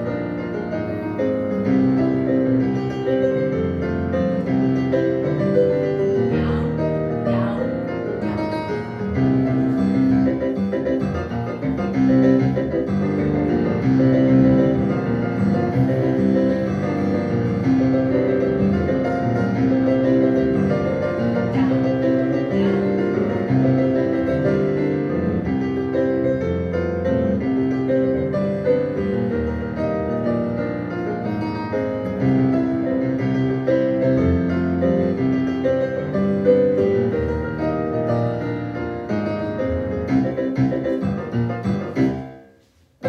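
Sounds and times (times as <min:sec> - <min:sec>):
solo piano playing: 0:00.0 - 0:42.6.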